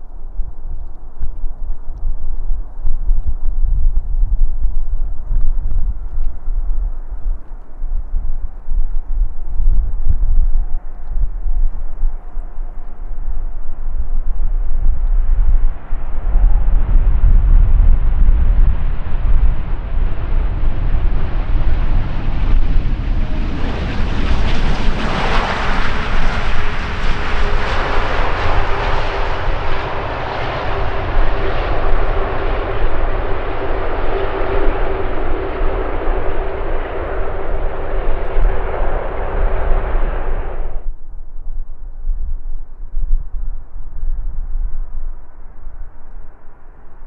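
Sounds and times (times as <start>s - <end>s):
jet airliner landing: 15.6s - 40.9s.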